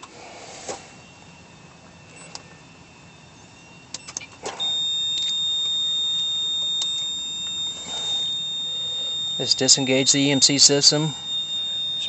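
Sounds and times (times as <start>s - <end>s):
sharp clicks: 3.9s - 12.0s
high-pitched electronic warning tone: 4.5s - 12.0s.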